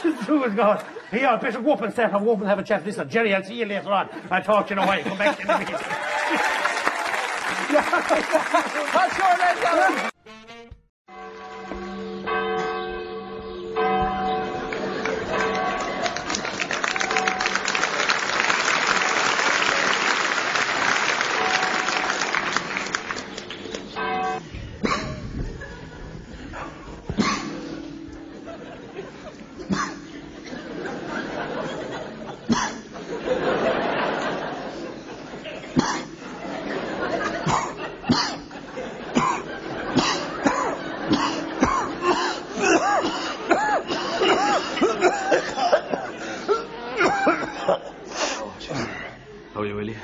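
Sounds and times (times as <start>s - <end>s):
audience applauding: 5.2s - 10.2s, 14.7s - 24.0s
men coughing: 24.8s - 25.7s, 26.4s - 49.3s
men clearing throats: 39.1s - 49.2s.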